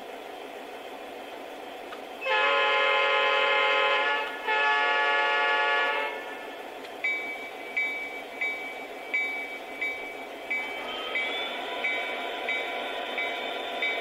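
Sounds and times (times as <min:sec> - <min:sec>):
recorded diesel engine hum: 0:00.0 - 0:14.0
locomotive horn blasts: 0:02.2 - 0:06.4.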